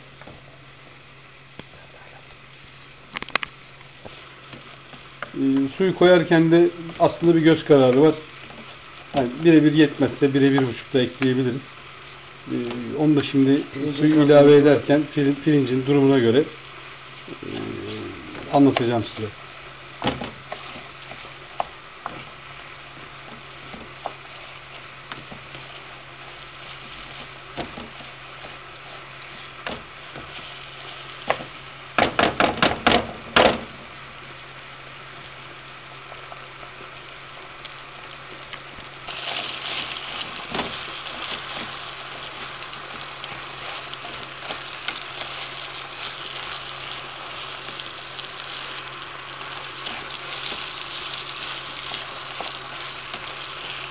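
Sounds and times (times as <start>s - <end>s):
rice sizzling in a frying pan: 0.0s - 53.9s
wooden spoon scraping a pan: 20.3s - 31.6s, 39.1s - 53.9s.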